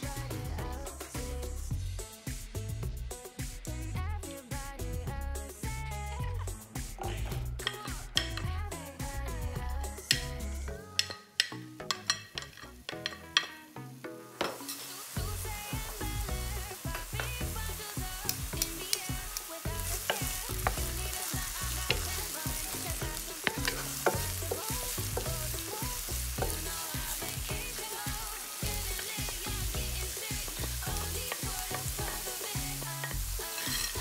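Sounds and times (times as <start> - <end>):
onion sizzling in oil: 6.1 - 34.0
spatula clicking against pan: 11.0 - 13.5, 18.2 - 20.9
wooden spatula scraping pan: 30.6 - 34.0.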